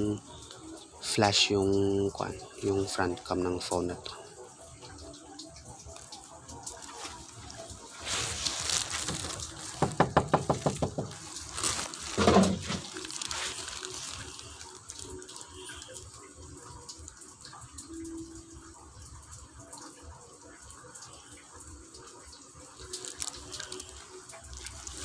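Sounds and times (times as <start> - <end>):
rustling noise: 6.8 - 15.3, 22.9 - 25.0
rapid knocks: 9.0 - 11.3.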